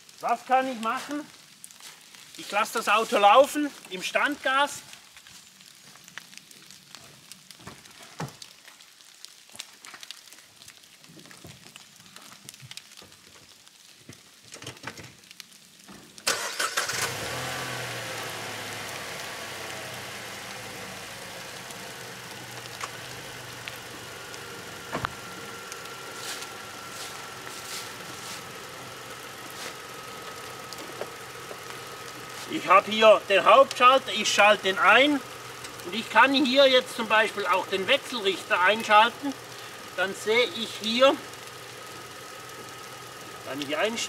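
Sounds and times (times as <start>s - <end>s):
footsteps on dry leaves: 0.7s - 8.8s, 21.3s - 33.6s
car engine starting and idling: 16.2s - 44.0s
thin steady whine: 18.7s - 44.0s.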